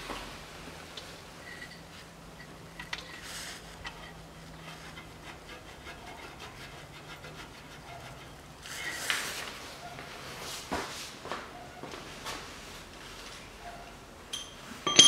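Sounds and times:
hand scraping rustle: 3.0 - 9.8.

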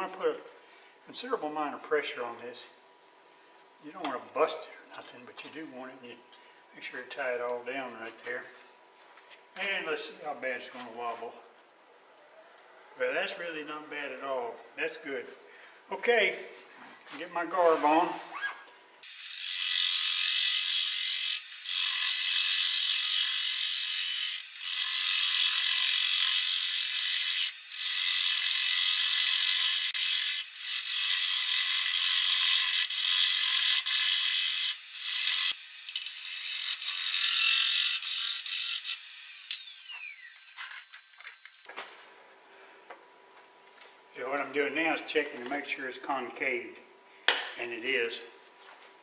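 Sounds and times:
lathe whine: 38.4 - 40.6.

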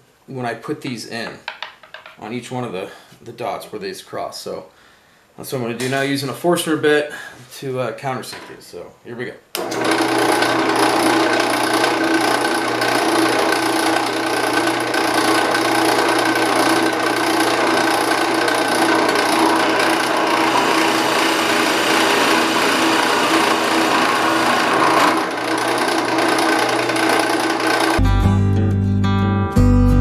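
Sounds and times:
drill bit scraping wood: 9.6 - 28.0
drill press motor hum: 9.6 - 28.0.

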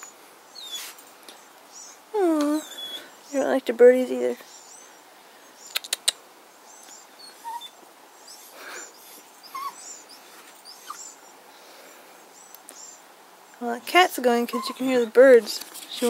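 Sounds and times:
faint birds chirping: 0.0 - 16.0
dog whimpering: 2.2 - 3.1, 7.2 - 11.2, 14.5 - 15.3
sharp clicks: 5.7 - 6.2.

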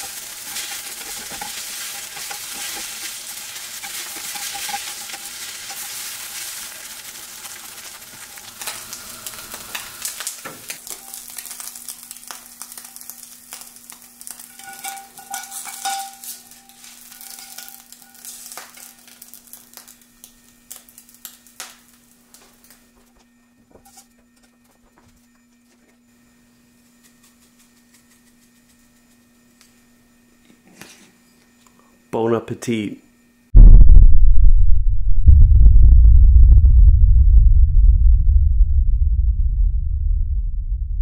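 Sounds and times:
metal spatula scraping pan: 0.0 - 6.9, 14.3 - 19.0
food sizzling in a pan: 0.0 - 22.9
steady low hum: 0.1 - 41.0.

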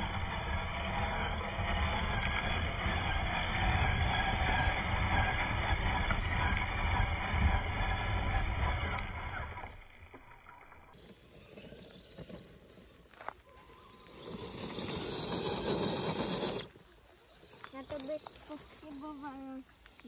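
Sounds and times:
electric motor and drivetrain: 0.0 - 20.0
tyres scrabbling on dirt and stones: 10.9 - 20.0.

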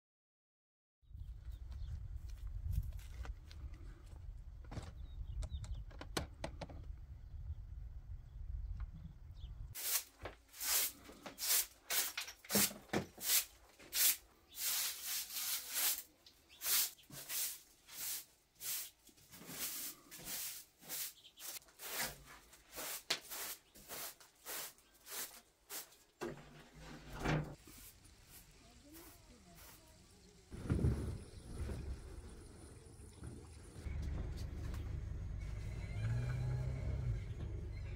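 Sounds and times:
wind on microphone: 1.1 - 9.8, 30.6 - 33.0
hand broom sweeping: 9.8 - 27.0, 27.6 - 30.2.

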